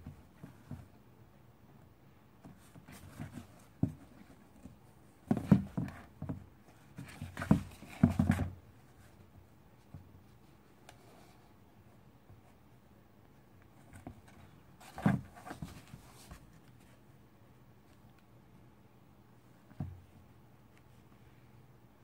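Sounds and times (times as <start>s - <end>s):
knocks and scrapes on cardboard box: 2.4s - 8.6s, 13.9s - 16.5s.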